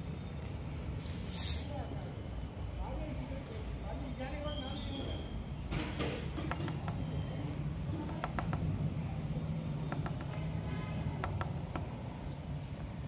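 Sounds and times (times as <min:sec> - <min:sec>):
kitten claws tapping on tiles: 0:09.9 - 0:10.5, 0:11.2 - 0:12.0.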